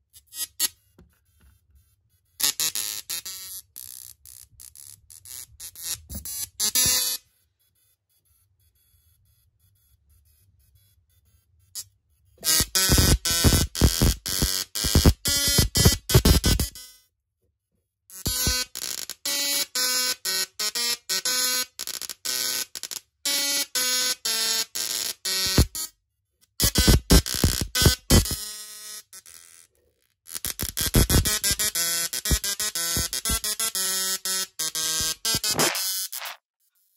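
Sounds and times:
tesla coil buzzing notes: 12.4 - 16.8, 18.3 - 19.1, 24.8 - 25.9, 26.6 - 29.6, 30.4 - 36.4.

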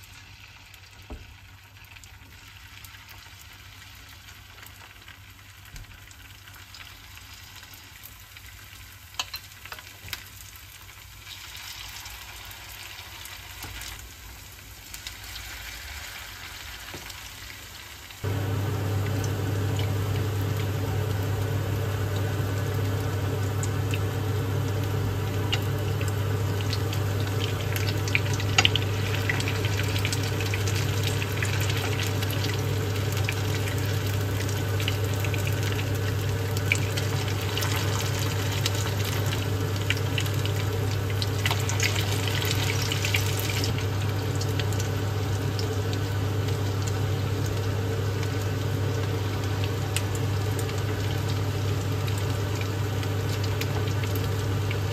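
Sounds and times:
food frying in hot oil: 0.0 - 54.9
steady low hum: 18.2 - 54.9.

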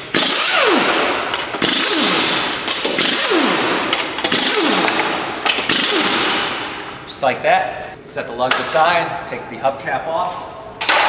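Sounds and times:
pneumatic impact wrench bursts: 0.0 - 6.9.

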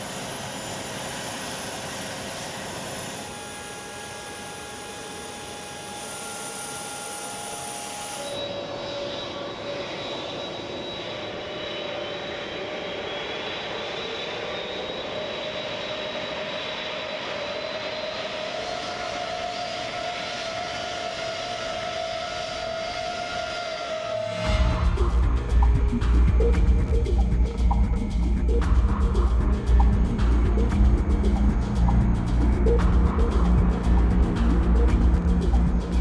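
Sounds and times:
jet engines roaring: 8.4 - 36.0.

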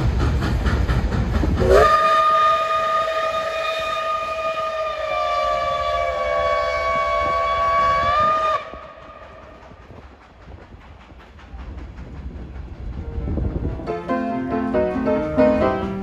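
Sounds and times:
train pulling away: 0.0 - 16.0
steam locomotive whistle: 1.6 - 9.5.

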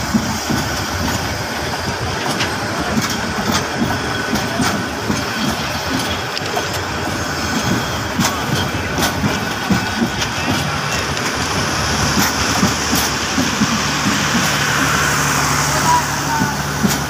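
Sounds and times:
train coaches rolling past: 0.0 - 17.0.

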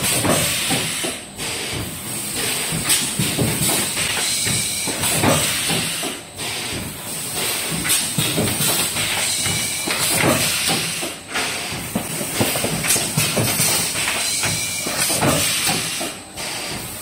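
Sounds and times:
machine clattering knocks and clicks: 0.0 - 17.0.

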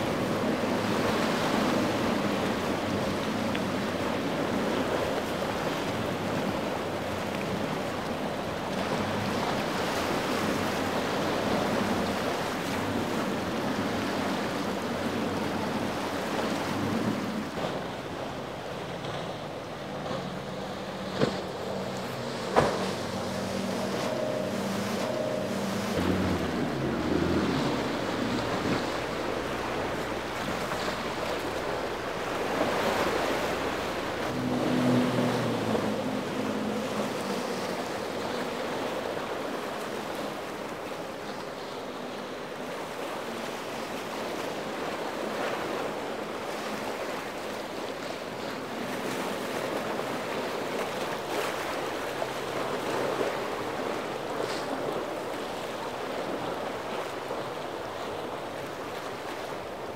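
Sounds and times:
wind buffeting microphone: 0.0 - 40.8
boat outboard motors running: 0.0 - 59.9
waves and surf washing: 0.0 - 59.9.

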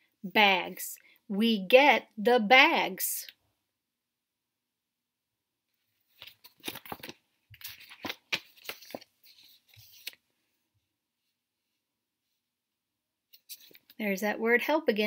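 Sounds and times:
book pages turning: 5.8 - 10.3.

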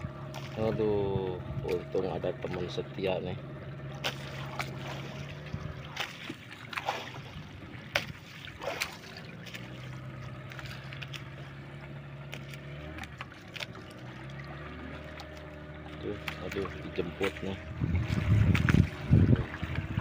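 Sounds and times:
boat engine humming: 0.0 - 20.0
water splashing: 0.0 - 20.0
knocks against wooden hulls: 16.2 - 19.9.

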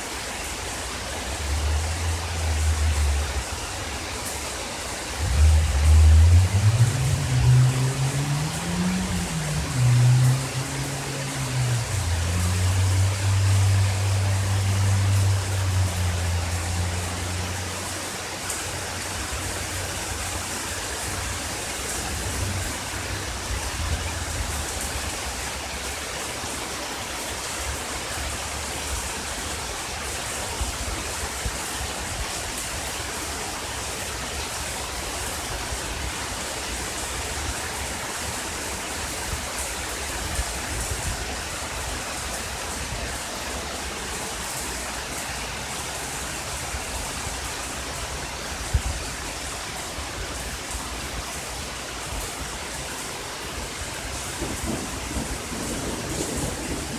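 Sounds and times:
heavy rain hissing: 0.0 - 56.9
low rumble: 5.1 - 17.7.

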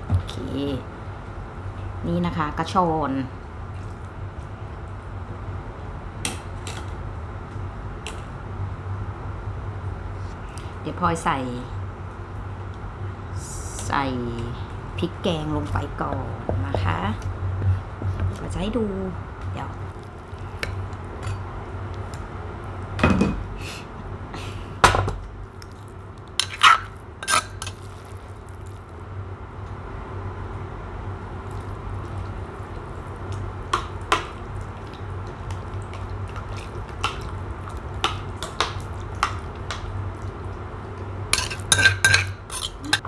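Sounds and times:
metal spoon scraping clay mortar: 26.4 - 27.8.

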